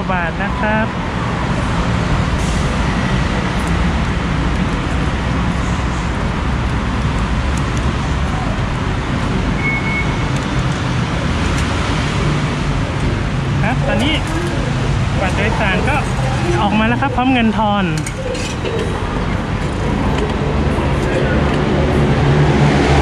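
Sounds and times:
traffic rumble: 0.0s - 23.0s
short high beep: 9.6s - 10.2s.

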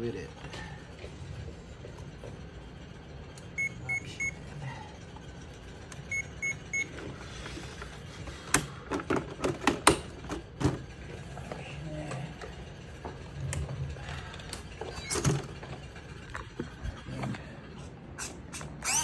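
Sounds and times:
high electronic beeps: 3.6s - 4.4s.

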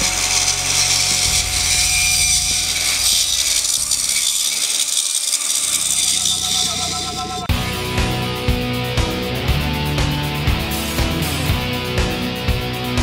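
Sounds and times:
bandsaw cutting wood: 0.0s - 7.5s.

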